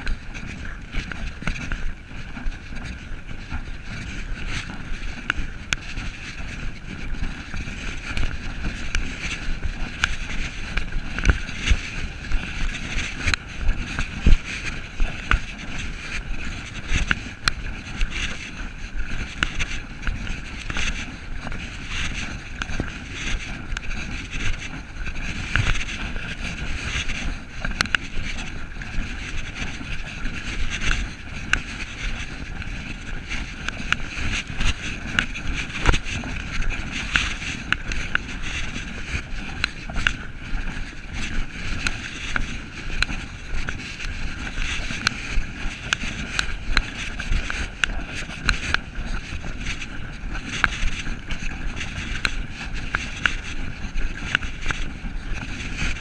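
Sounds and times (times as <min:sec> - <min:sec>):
footsteps on trail: 0:00.0 - 0:56.0.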